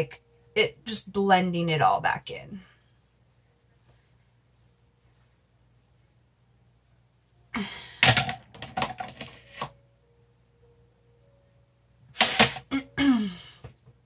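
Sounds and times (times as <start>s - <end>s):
makeup brush rubbing skin: 3.2s - 6.6s.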